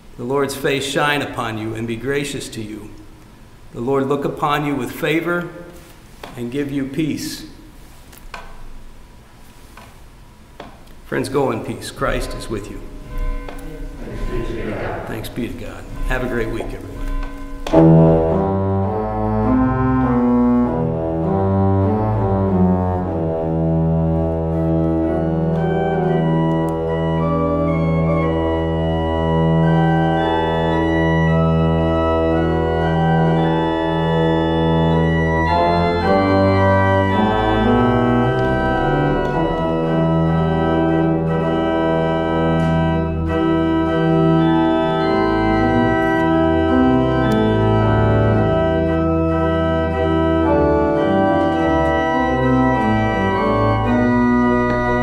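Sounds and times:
pipe organ chords: 11.2 - 55.0.

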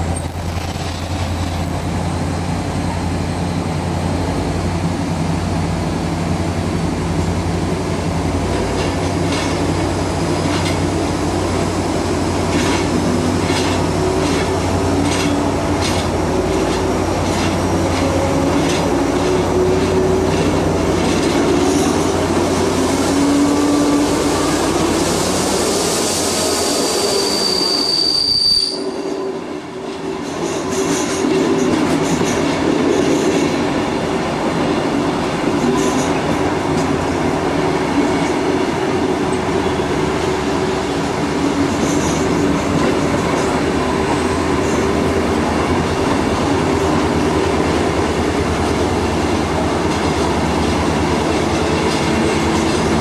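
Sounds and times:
diesel locomotive engine drone: 0.0 - 53.0
train wheels clicking over joints: 8.2 - 25.8, 30.1 - 33.8, 39.2 - 53.0.

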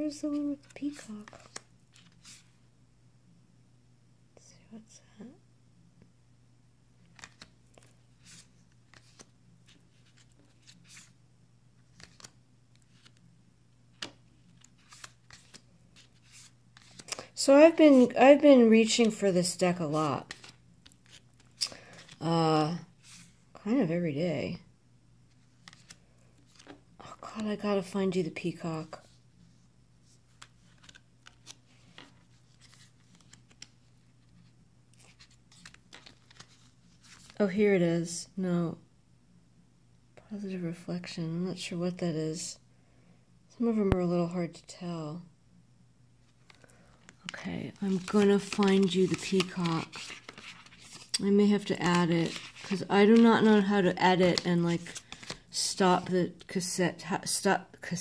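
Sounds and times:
cards clicking and rustling: 0.3 - 2.4, 7.1 - 11.1, 11.8 - 13.2, 13.9 - 18.1, 19.9 - 22.2, 25.6 - 26.8, 30.3 - 33.8, 35.0 - 37.4, 46.4 - 56.1.

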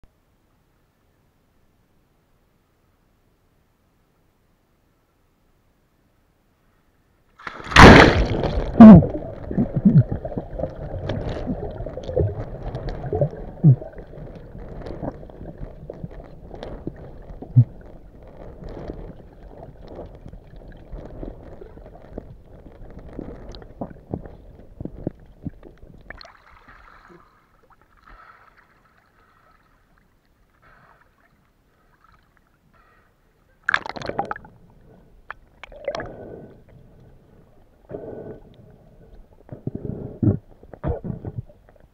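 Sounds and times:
camera splashing into water: 7.4 - 9.8
bubbling: 7.4 - 28.0, 33.6 - 41.9
muffled underwater sloshing: 7.4 - 41.9.

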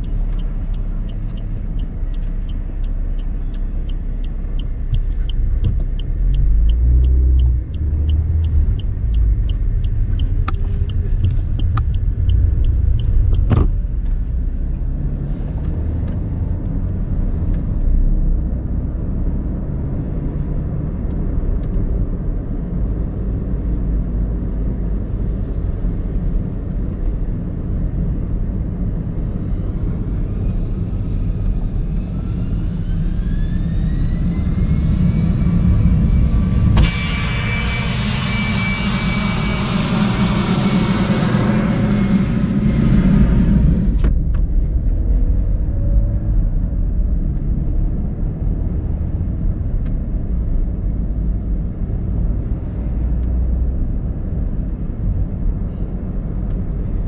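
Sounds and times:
car engine while driving: 0.0 - 57.0
road rumble: 0.0 - 57.0
bright rushing noise: 35.8 - 42.5.

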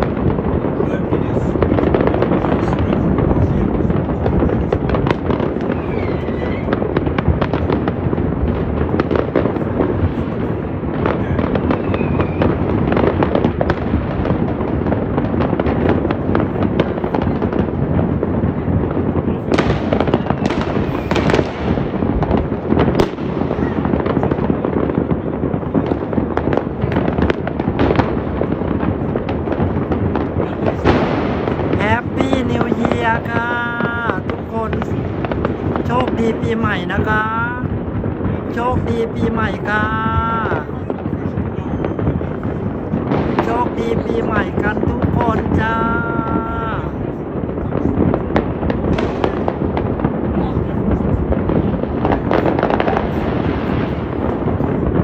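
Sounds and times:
fireworks and firecrackers banging: 0.0 - 55.0
firework whistles: 5.5 - 7.0, 11.5 - 13.2, 19.7 - 21.4, 41.5 - 42.4.

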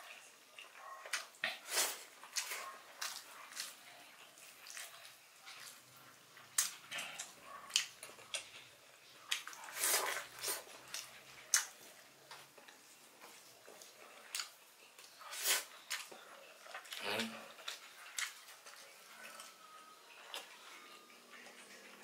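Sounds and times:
man chewing and lip-smacking: 6.4 - 8.7, 9.3 - 20.7.

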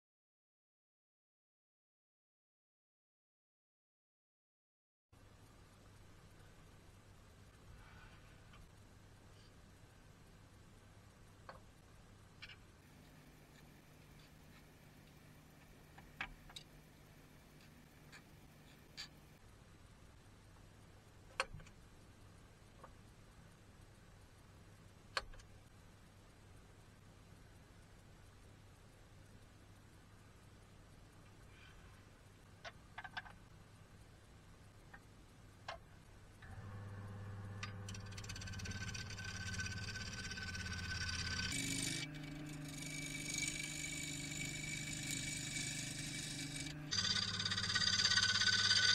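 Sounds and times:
quiet workshop hum: 5.2 - 48.9
wood lathe motor hum: 36.4 - 48.9.

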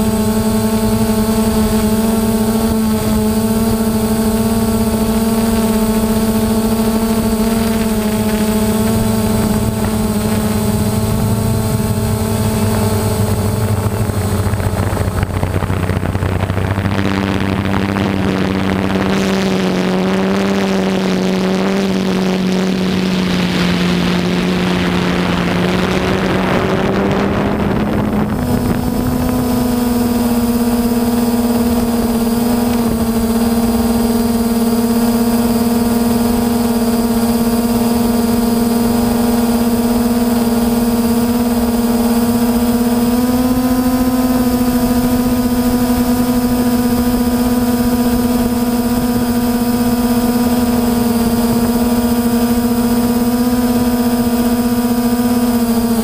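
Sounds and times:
quadcopter propellers droning: 0.0 - 56.0
rushing noise: 0.8 - 19.9.

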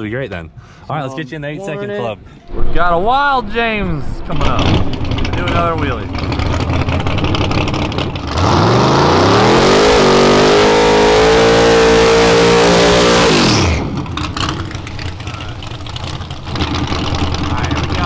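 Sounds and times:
tyres spinning: 2.8 - 8.6
drag car engine revving: 2.8 - 18.0.

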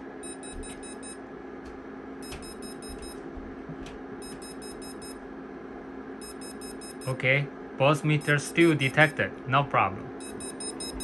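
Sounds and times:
steady low hum: 0.0 - 11.0
high electronic beeps: 6.2 - 7.2, 10.2 - 11.0.

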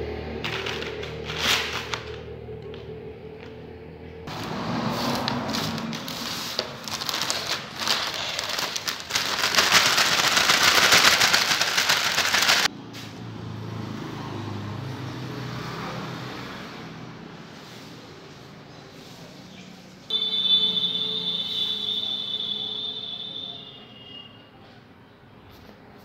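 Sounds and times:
broom sweeping hard floor: 4.3 - 7.2, 17.4 - 19.5.

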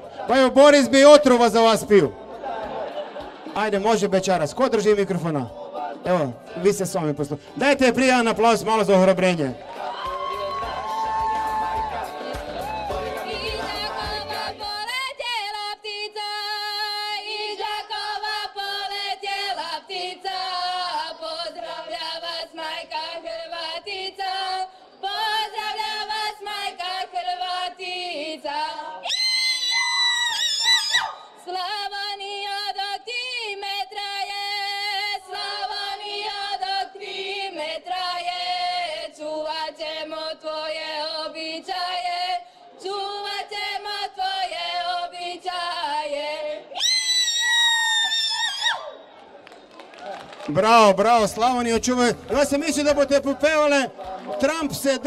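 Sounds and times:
group singing folk song: 0.0 - 1.0, 2.0 - 29.1, 31.3 - 46.8, 52.0 - 55.0
high whooping cry: 9.8 - 12.0, 46.7 - 49.0.

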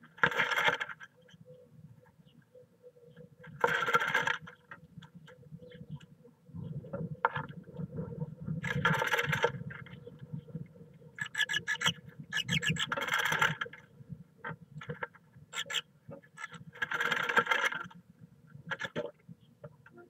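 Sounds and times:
bird scratching in nest box: 11.3 - 13.4.

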